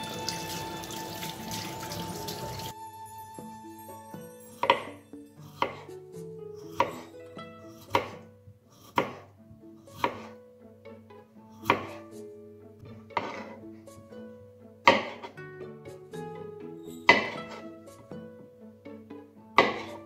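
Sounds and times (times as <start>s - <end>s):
soft background music: 0.0s - 20.0s
knife cutting on wooden board: 5.5s - 6.0s, 6.6s - 9.3s, 9.9s - 10.4s, 11.6s - 12.1s, 12.9s - 13.6s, 14.9s - 15.4s, 17.1s - 17.7s, 19.6s - 20.0s.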